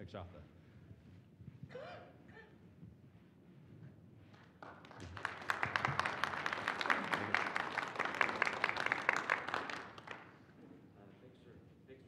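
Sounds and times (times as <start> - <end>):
audience applauding: 4.6 - 10.5.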